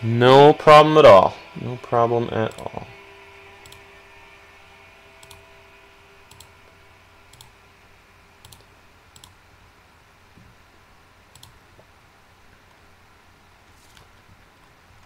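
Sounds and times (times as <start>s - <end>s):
computer mouse clicks: 3.6s - 3.8s, 5.2s - 5.4s, 6.3s - 6.5s, 7.3s - 7.6s, 8.4s - 9.4s, 11.3s - 11.6s.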